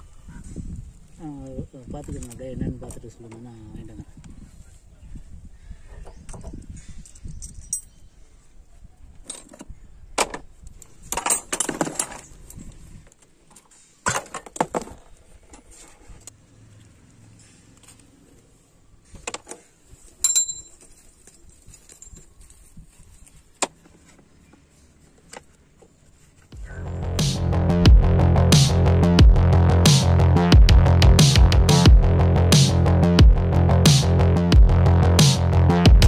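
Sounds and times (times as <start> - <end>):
metal tools clinking: 7.0 - 8.0, 11.1 - 12.4, 20.1 - 22.7.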